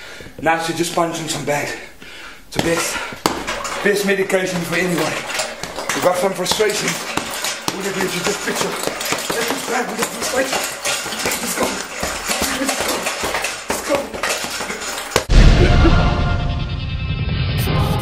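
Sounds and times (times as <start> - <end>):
punching bag being struck: 2.6 - 15.6
loud low music hit: 15.3 - 18.0.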